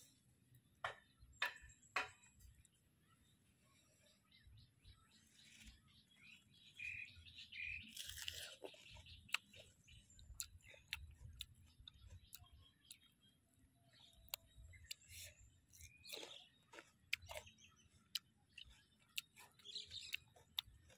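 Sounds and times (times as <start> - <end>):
bird chirping: 0.0 - 20.9
chewing raw vegetables: 5.1 - 20.9
wet mouth clicks: 10.3 - 13.0, 14.3 - 16.4, 18.1 - 20.8.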